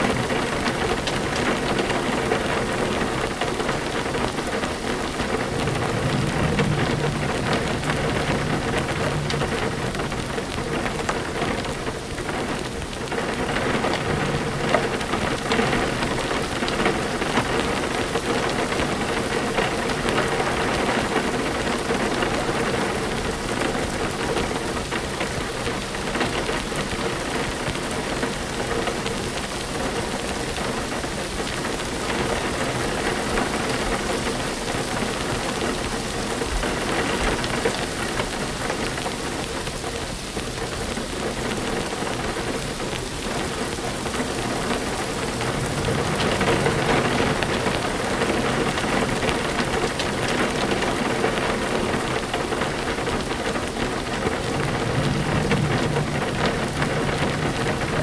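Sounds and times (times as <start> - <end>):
steady rain hiss: 0.0 - 58.0
low rumble: 5.0 - 12.6, 43.8 - 49.7, 53.4 - 58.0.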